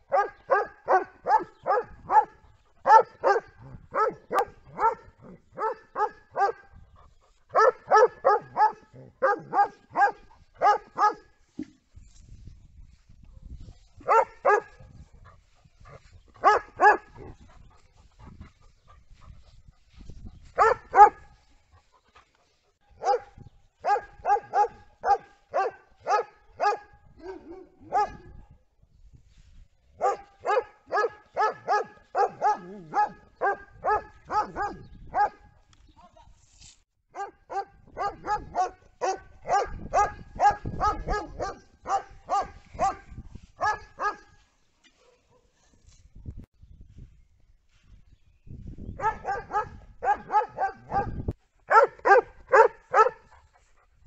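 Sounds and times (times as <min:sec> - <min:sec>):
dog barking: 0:00.1 - 0:06.7, 0:07.5 - 0:11.3, 0:14.0 - 0:14.9, 0:16.4 - 0:17.4, 0:20.6 - 0:21.3, 0:23.0 - 0:28.4, 0:30.0 - 0:35.5, 0:37.1 - 0:45.6, 0:49.0 - 0:53.3.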